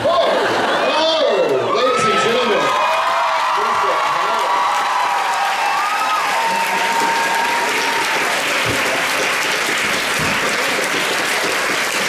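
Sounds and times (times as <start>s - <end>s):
crowd cheering shrilly: 0.0s - 9.6s
audience applauding: 2.0s - 12.0s.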